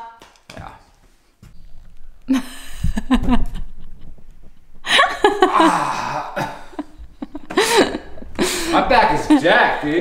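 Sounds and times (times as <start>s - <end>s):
people laughing: 2.3s - 10.0s.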